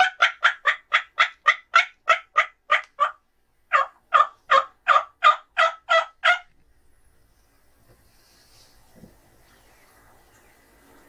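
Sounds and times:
turkey yelps: 0.0s - 6.5s.

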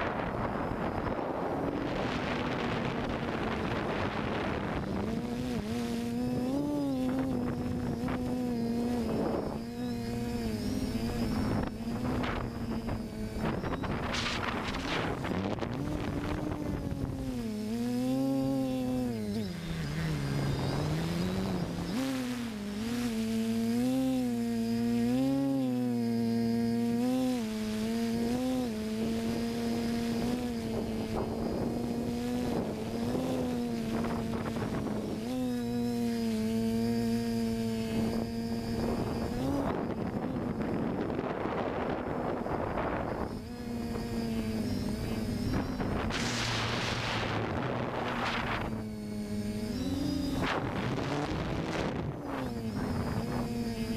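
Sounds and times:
drone motors buzzing hum: 0.0s - 53.9s
rush of air noise: 38.7s - 49.2s.

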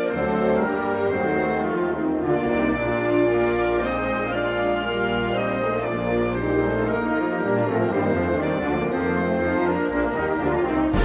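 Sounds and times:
orchestral music with held chords: 0.0s - 11.0s.

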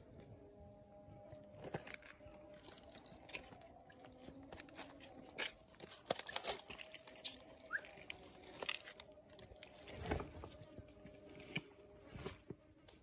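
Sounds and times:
jaws crunching and tearing prey: 1.6s - 10.0s.

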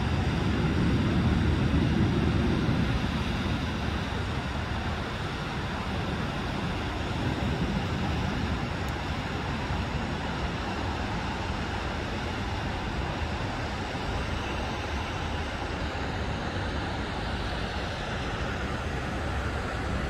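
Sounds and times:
aircraft cabin engine hum: 0.0s - 20.0s.

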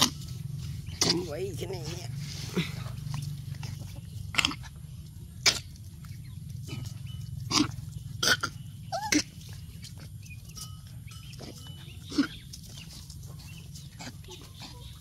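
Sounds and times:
puppies yapping and grunting: 0.0s - 15.0s
steady low hum: 0.0s - 15.0s.

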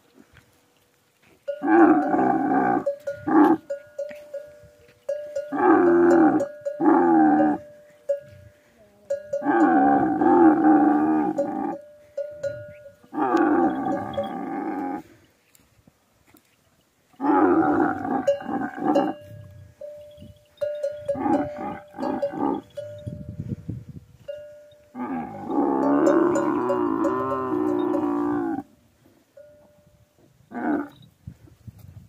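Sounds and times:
camels groaning: 1.6s - 3.6s, 5.5s - 7.6s, 9.4s - 11.8s, 13.0s - 15.2s, 17.2s - 19.2s, 21.0s - 22.8s.

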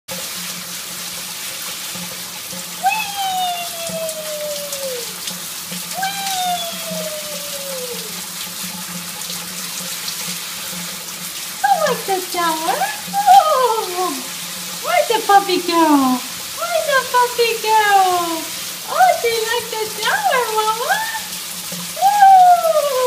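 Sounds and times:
shower water spraying: 0.2s - 23.0s
calls sliding in pitch: 2.8s - 5.2s, 5.9s - 8.2s.

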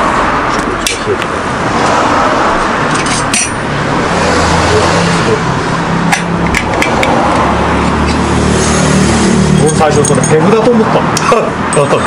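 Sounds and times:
metallic clicks and taps: 6.1s - 7.2s.

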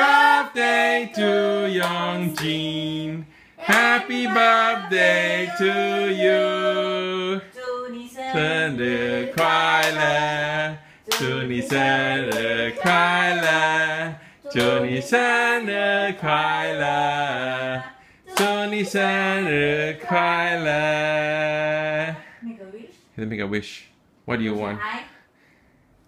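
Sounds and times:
voices singing together: 0.0s - 22.4s
hand claps: 1.8s - 2.6s, 3.7s - 3.9s, 9.4s - 10.0s, 11.1s - 13.6s, 18.3s - 18.6s.

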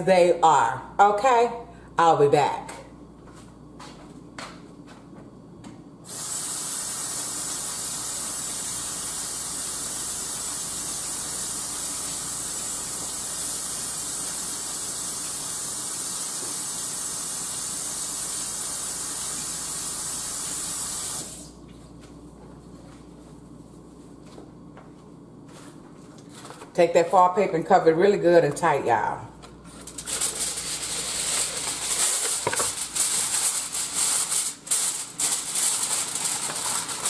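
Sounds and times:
faucet water running: 6.1s - 21.5s.

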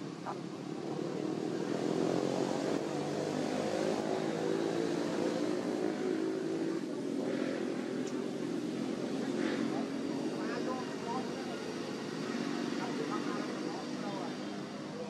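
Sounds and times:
engine droning: 0.0s - 15.0s.

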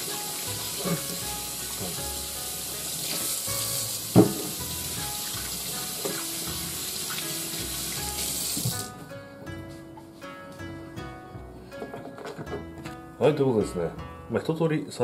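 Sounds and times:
tap water running into sink: 0.0s - 8.9s.

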